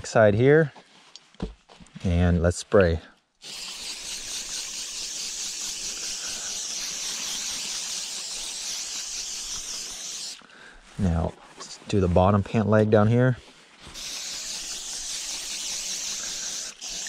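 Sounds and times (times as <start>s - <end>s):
aerosol spray can hissing: 3.4s - 10.5s, 13.9s - 17.0s.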